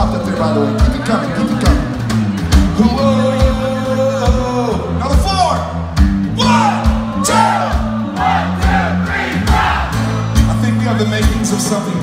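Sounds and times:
electric bass line: 0.0s - 12.0s
strummed acoustic guitars: 5.9s - 12.0s
audience singing and shouting: 6.3s - 10.6s.

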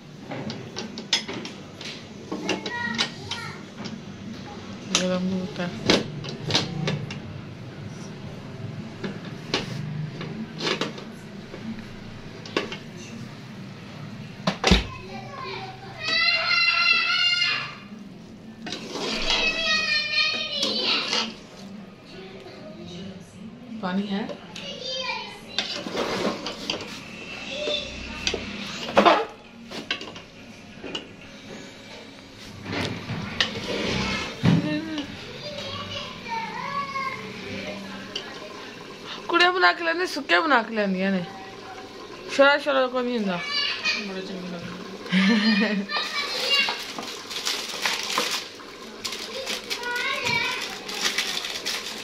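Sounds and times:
ladle scraping metal pot: 18.6s - 19.8s, 20.6s - 21.7s, 25.6s - 30.2s, 32.4s - 35.1s.

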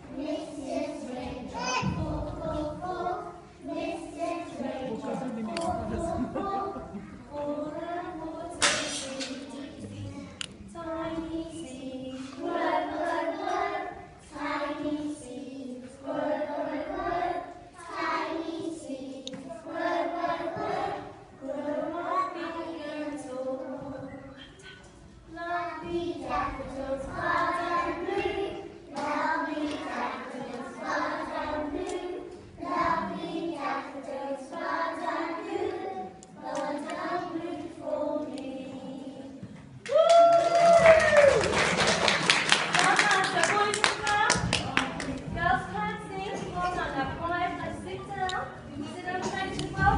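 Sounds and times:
young children singing: 0.0s - 49.9s.

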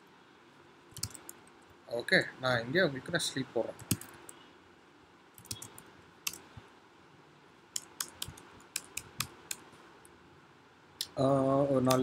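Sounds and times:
computer keyboard keys clicking: 0.9s - 1.4s, 3.8s - 4.4s, 5.4s - 6.4s, 7.8s - 9.6s.

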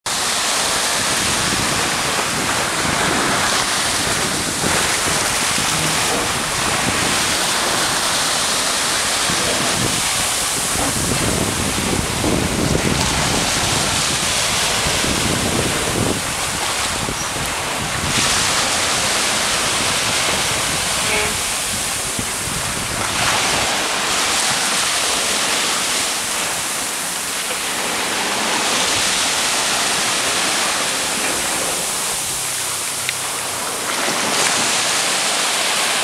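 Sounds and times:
wind noise on microphone: 0.1s - 27.3s
small waves washing up beach: 0.1s - 36.0s.

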